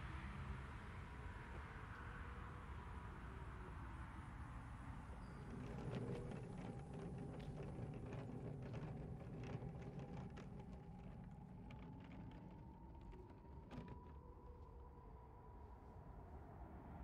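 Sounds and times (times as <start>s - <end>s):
suitcase wheels rumbling on pavement: 5.1s - 14.2s.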